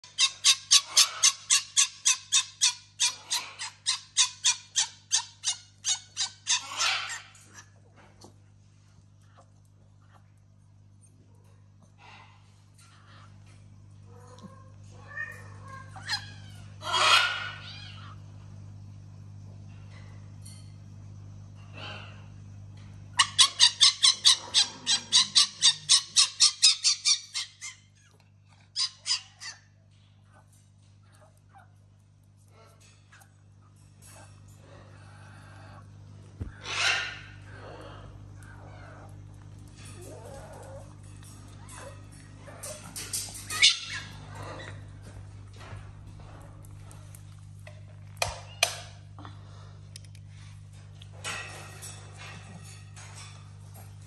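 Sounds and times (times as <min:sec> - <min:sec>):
fox yelping: 0:23.2 - 0:27.8.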